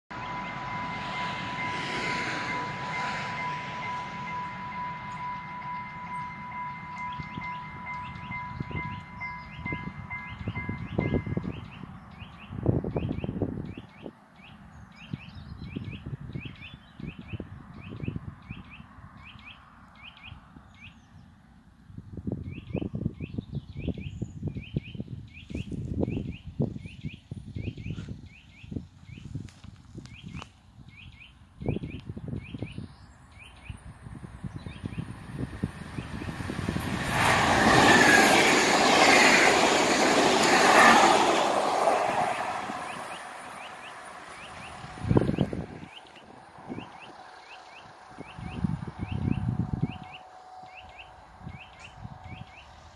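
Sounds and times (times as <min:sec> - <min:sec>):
electronic level-crossing bell: 0:00.1 - 0:11.6
train passing: 0:00.1 - 0:15.1, 0:33.1 - 0:52.9
wind rumbling on microphone: 0:06.8 - 0:50.2, 0:50.9 - 0:52.9.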